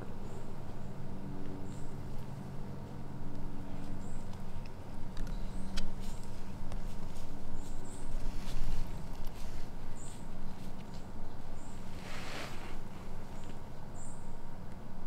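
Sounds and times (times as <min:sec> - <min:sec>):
light rustling: 0:03.6 - 0:13.7.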